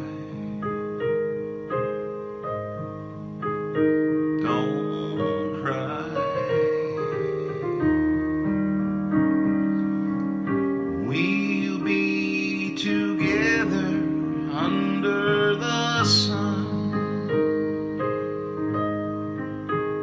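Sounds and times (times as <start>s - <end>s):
electric keyboard chords: 0.0s - 20.0s
man singing: 4.4s - 7.9s, 11.0s - 17.8s.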